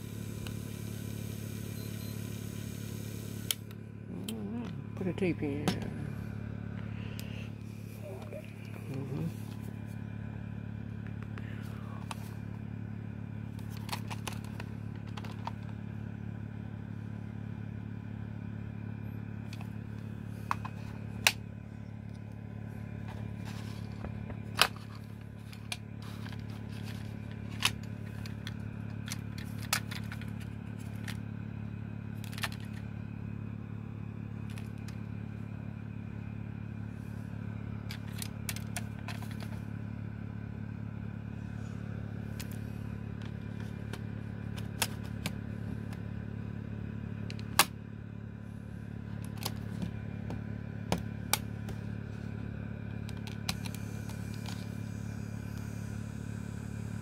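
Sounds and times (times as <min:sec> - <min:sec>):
steady low hum: 0:00.0 - 0:57.0
cassette tape plastic clicks: 0:13.5 - 0:15.8, 0:23.0 - 0:31.2, 0:32.1 - 0:32.9, 0:34.4 - 0:35.0, 0:37.8 - 0:39.6, 0:43.2 - 0:46.0, 0:47.2 - 0:47.7, 0:49.2 - 0:51.8, 0:52.8 - 0:54.7.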